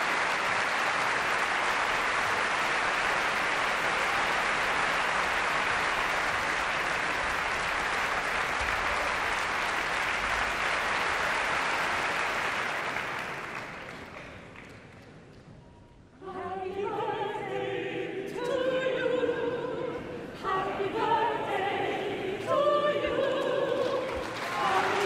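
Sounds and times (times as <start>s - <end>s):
audience applauding: 0.0s - 15.2s, 23.7s - 25.0s.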